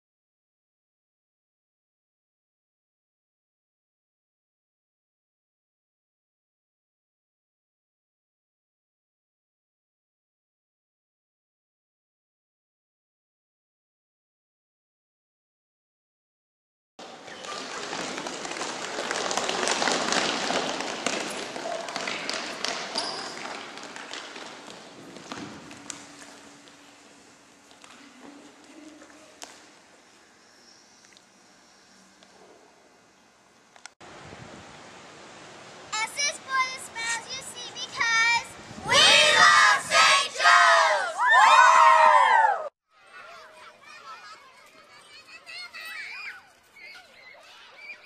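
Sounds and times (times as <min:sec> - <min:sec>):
children yelling and cheering: 0:17.0 - 0:19.9, 0:36.0 - 0:48.0
crowd of many voices: 0:17.0 - 0:23.8, 0:42.9 - 0:48.0
children shouting: 0:38.9 - 0:48.0.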